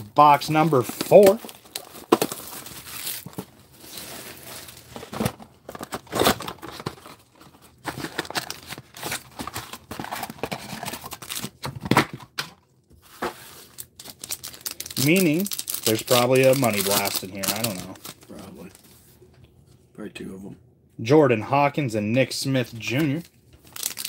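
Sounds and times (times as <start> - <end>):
cardboard packaging tearing: 0.5 - 7.2, 7.8 - 11.6.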